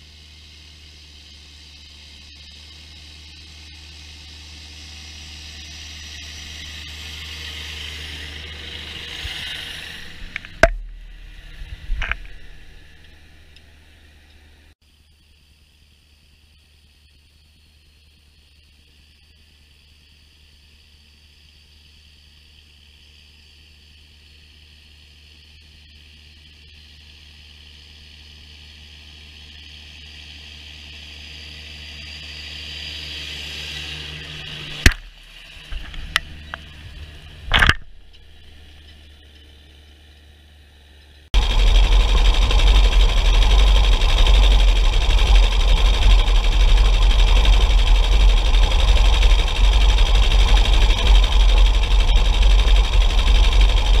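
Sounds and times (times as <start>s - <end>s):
tractor diesel engine running: 0.0s - 14.8s, 26.2s - 54.0s.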